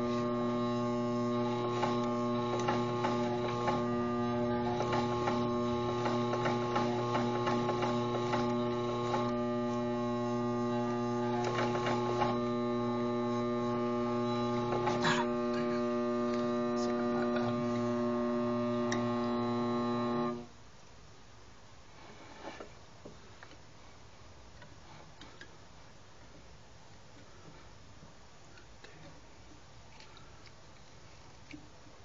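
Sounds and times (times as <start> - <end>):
electric motor humming: 0.0 - 20.5.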